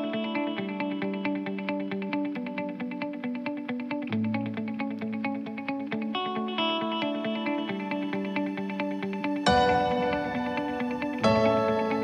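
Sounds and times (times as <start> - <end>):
ambient background music: 4.1 - 12.0.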